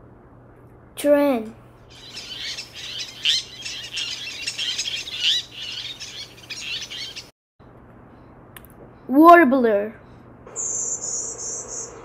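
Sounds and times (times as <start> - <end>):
terns calling: 1.9 - 7.3, 10.5 - 12.0.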